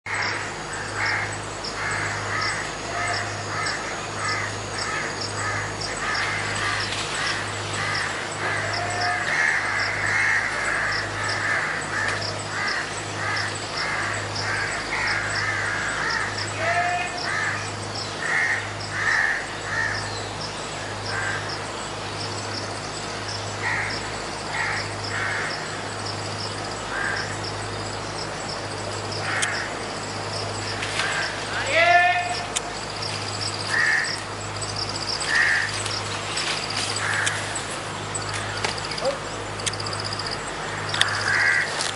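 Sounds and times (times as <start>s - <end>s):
animal calls: 0.1s - 20.1s, 23.4s - 41.8s
low hum: 0.1s - 31.7s, 32.3s - 41.9s
high ticking: 19.9s - 41.7s.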